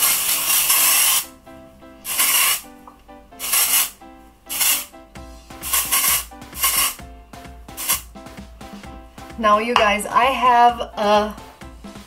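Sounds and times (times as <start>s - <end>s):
hair spray hissing: 0.0s - 1.3s, 2.0s - 2.7s, 3.4s - 4.9s, 5.6s - 7.0s, 7.7s - 8.1s.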